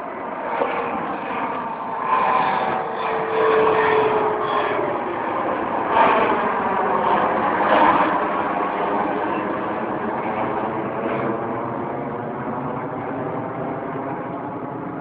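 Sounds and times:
jet engines roaring overhead: 0.0s - 15.0s.

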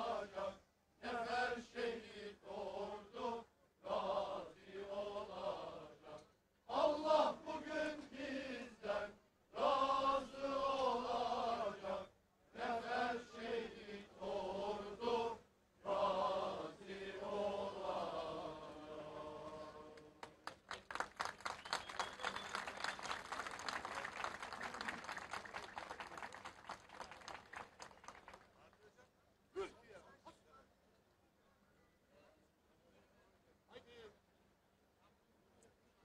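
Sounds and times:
men chanting in unison: 0.0s - 20.0s
applause: 19.9s - 29.0s.

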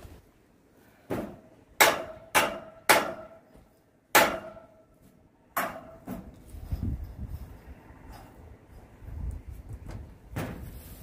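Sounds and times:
hammer striking metal pipe: 1.2s - 4.9s, 5.6s - 6.2s.

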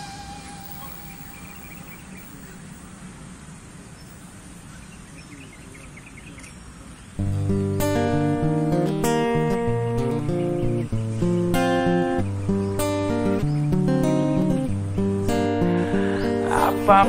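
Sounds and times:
music note: 0.0s - 2.2s
faint high chirps: 0.0s - 2.9s
strummed acoustic guitar music: 7.2s - 17.0s.

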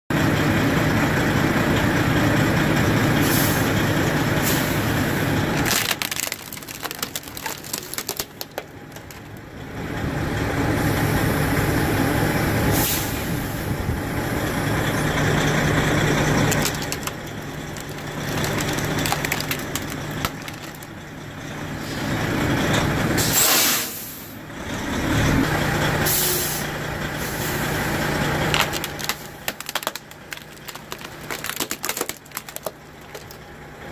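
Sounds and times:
diesel truck engine running: 0.1s - 33.9s
air brake hisses: 12.7s - 13.6s, 23.2s - 24.4s, 26.1s - 27.8s.

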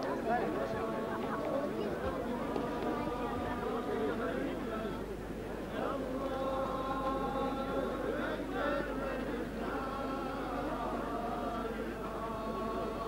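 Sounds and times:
men chanting in long notes: 5.7s - 13.0s.

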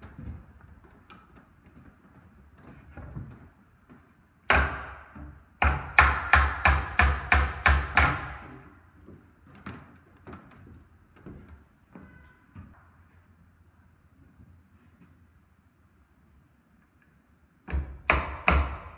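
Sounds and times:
hammer hitting nail into wood: 4.5s - 8.5s, 17.7s - 18.9s.

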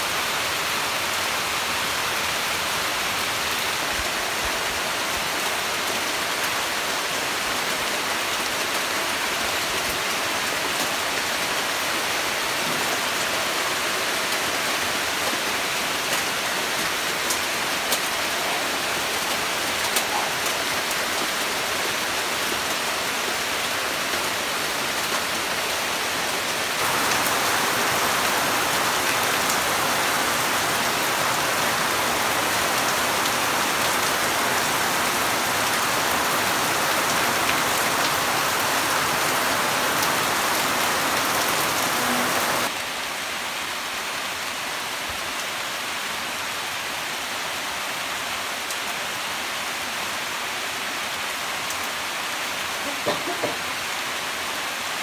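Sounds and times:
heavy rain on leaves and ground: 0.0s - 55.0s.

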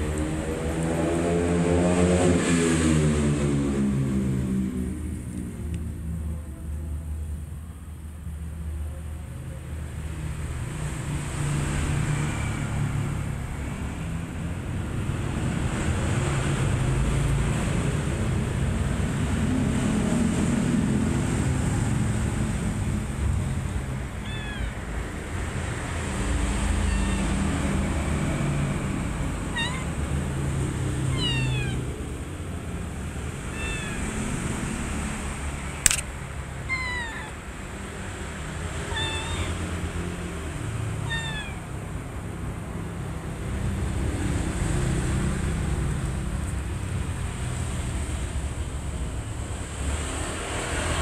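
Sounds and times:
kittens mewing: 24.0s - 25.2s, 26.6s - 27.8s, 29.4s - 32.2s, 33.2s - 34.4s, 35.8s - 37.8s, 38.4s - 40.0s, 40.9s - 42.0s
sharp click: 35.8s - 36.2s.

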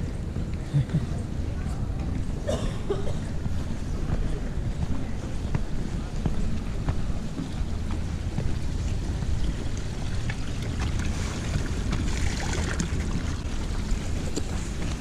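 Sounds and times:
wind rumbling on microphone: 0.0s - 15.0s
footsteps: 3.3s - 15.0s
water splashing into trough: 9.2s - 14.6s.

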